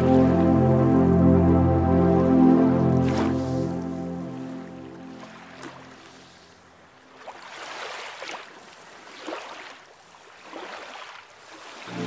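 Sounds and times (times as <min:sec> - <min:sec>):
seawater lapping between rocks: 0:05.2 - 0:12.0.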